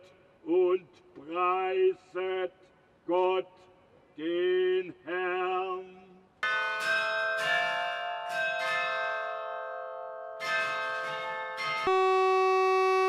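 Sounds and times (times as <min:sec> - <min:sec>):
bells chiming: 0:06.4 - 0:12.3.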